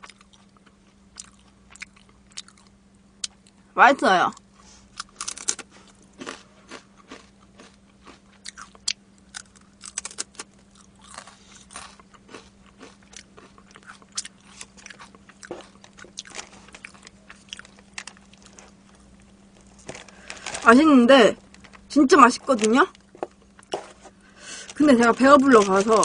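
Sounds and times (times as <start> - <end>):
crunchy chewing: 0.0 - 3.6, 4.6 - 20.7
faint steady hum: 0.0 - 26.0.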